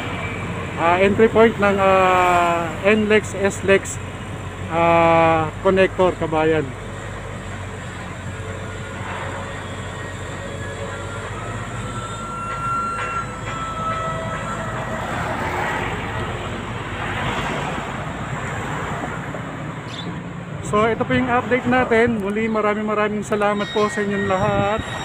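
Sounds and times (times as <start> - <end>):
roadside traffic: 0.0 - 25.0
thin high whine: 23.3 - 25.0.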